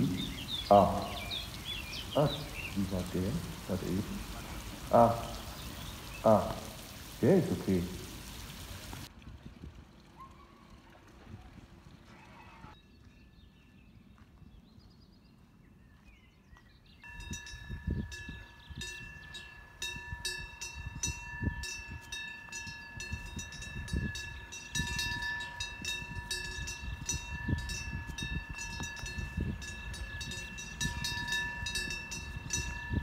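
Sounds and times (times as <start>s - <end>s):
cow bells clanking: 17.0s - 33.0s.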